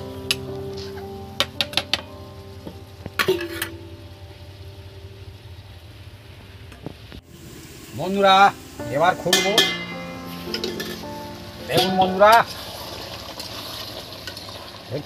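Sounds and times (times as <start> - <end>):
curry sizzling: 0.0 - 15.0
steel lid clanging: 3.2 - 3.9, 9.2 - 11.1, 11.7 - 12.6
metal ladle clinking on pot: 9.3 - 10.0, 10.6 - 11.0.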